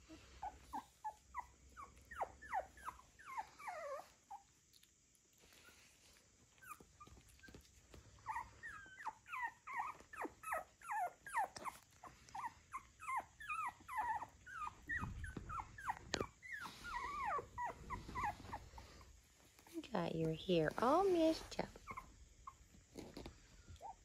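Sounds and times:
puppies squeaking and whimpering: 0.0s - 4.7s, 5.5s - 19.8s, 20.8s - 24.0s.

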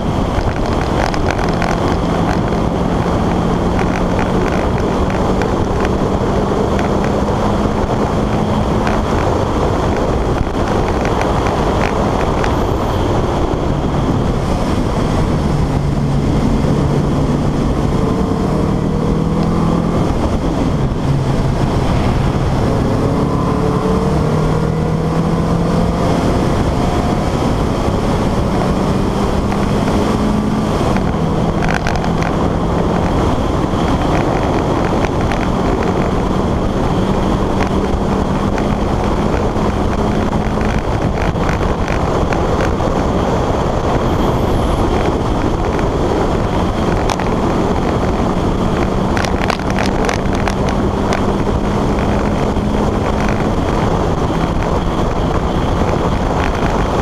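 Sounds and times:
car engine at racing speed: 0.0s - 57.0s
wind and road noise: 0.0s - 57.0s
sharp clicks: 29.4s - 36.1s.

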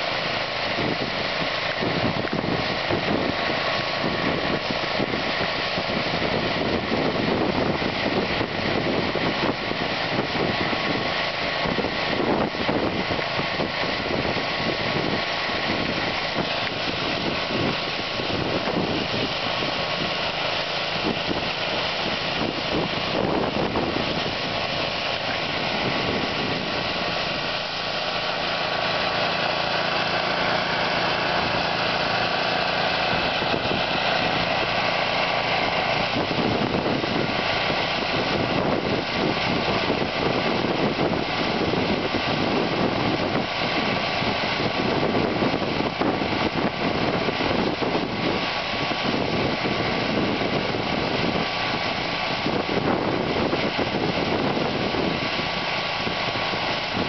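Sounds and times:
snowblower engine running: 0.0s - 57.0s
dense hiss of thrown grain: 9.7s - 40.0s.

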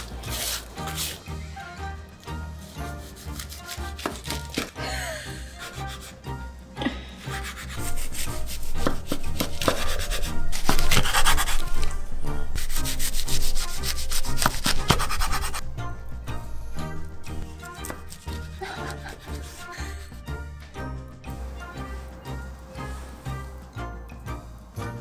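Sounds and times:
soft background music: 0.0s - 25.0s
knife crackling through seaweed roll: 3.0s - 4.8s.

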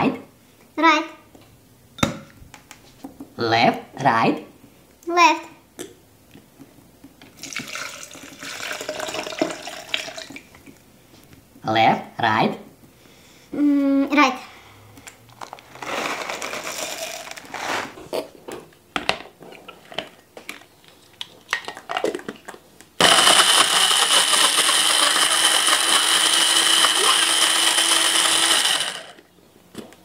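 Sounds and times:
kibble rattling into jug: 15.4s - 17.6s
blender running: 23.0s - 29.2s.

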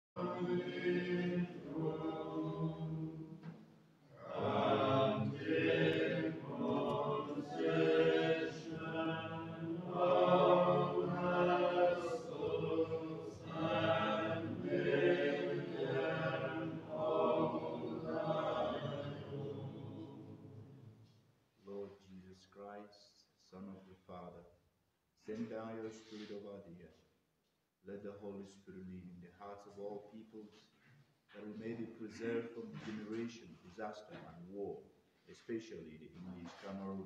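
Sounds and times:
voices singing a slow chant: 0.2s - 21.0s.

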